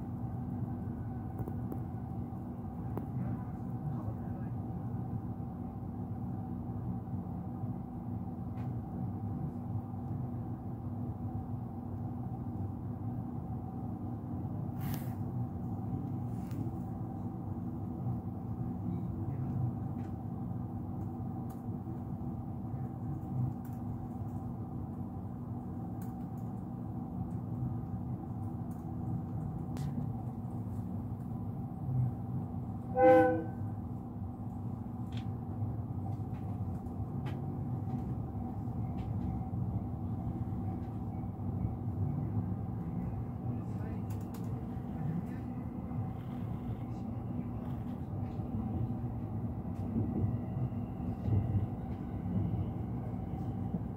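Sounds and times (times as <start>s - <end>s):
train rumbling on track: 0.0s - 53.9s
train horn blast: 32.9s - 33.7s.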